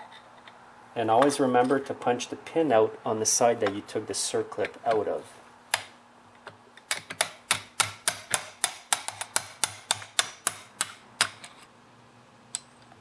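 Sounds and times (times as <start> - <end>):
hammer tapping metal punch: 6.9 - 11.4.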